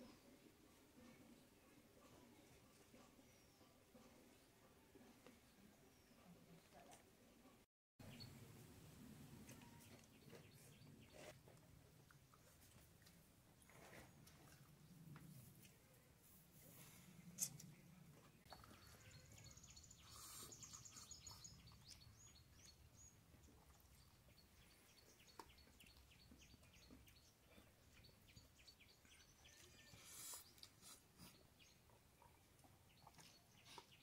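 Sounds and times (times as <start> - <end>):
faint bird chirping: 16.6 - 34.0.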